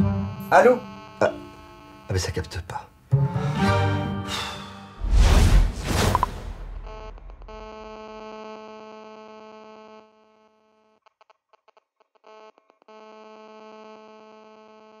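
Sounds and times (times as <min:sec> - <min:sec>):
faint electronic buzzing tone: 0:00.0 - 0:02.5, 0:06.1 - 0:11.0.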